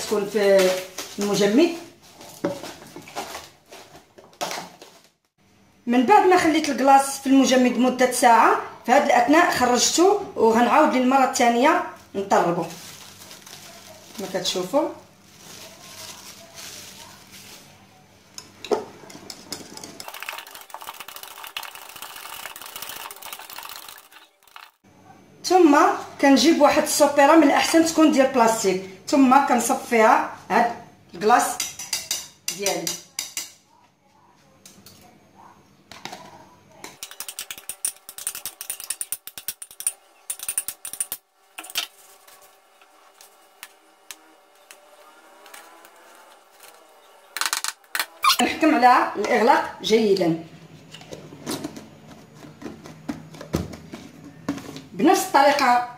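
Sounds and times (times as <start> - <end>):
cling film crinkling: 12.6 - 14.5, 15.2 - 17.8, 20.0 - 24.8, 41.6 - 48.4
whisk beating thick mixture: 19.6 - 24.6.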